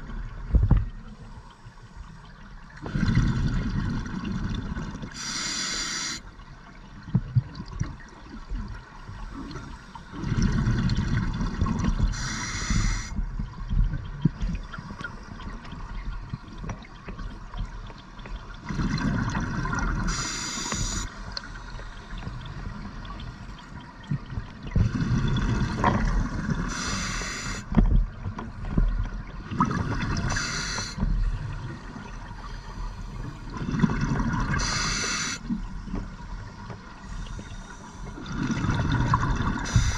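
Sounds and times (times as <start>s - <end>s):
bubbles gurgling on exhalation: 2.9s - 5.0s, 10.2s - 12.1s, 18.6s - 20.1s, 33.5s - 34.6s, 38.2s - 39.9s
regulator hissing on inhalation: 5.2s - 6.2s, 12.2s - 13.1s, 20.1s - 21.1s, 26.7s - 27.7s, 30.3s - 31.0s, 34.6s - 35.4s, 39.7s - 39.9s.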